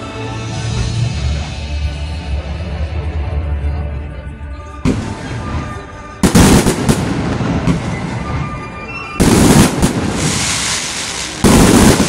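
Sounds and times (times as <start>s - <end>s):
music soundtrack: 0.0s - 12.0s
fireworks blast: 4.8s - 12.0s
crackle of sparks: 9.2s - 12.0s.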